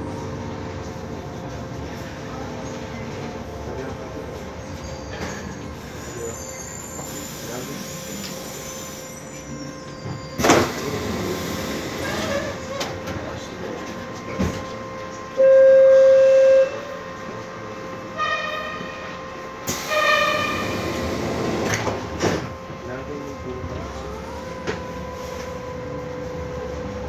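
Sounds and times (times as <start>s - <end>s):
train running rumble: 0.0s - 15.4s, 16.8s - 27.0s
pneumatic hiss: 5.2s - 12.9s, 19.6s - 22.5s.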